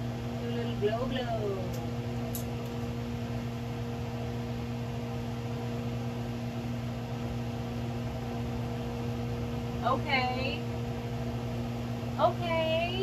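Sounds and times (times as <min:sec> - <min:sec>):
range hood fan whirring: 0:00.0 - 0:13.0.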